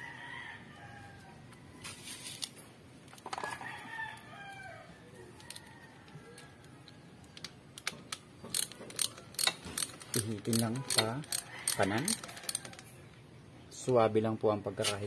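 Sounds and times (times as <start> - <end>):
rooster crowing: 0.0 - 1.9, 3.4 - 7.0, 11.2 - 13.0
sharp metal clicks: 6.3 - 12.9.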